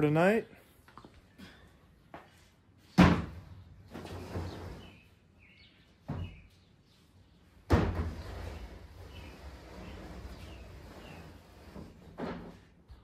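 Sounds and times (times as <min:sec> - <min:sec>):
birds chirping: 0:03.5 - 0:11.7
wood scraping slide: 0:08.1 - 0:12.6.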